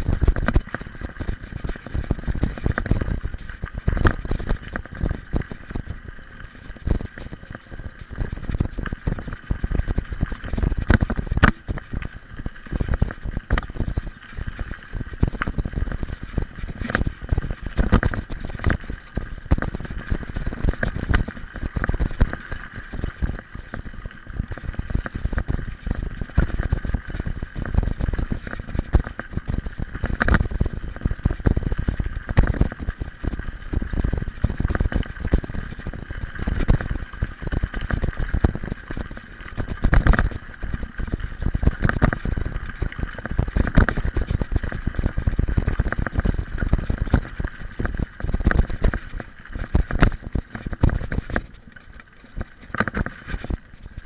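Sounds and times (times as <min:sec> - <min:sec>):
bike tyres rumbling on gravel: 0:00.0 - 0:54.0
bike knocking and rattling: 0:06.6 - 0:11.9.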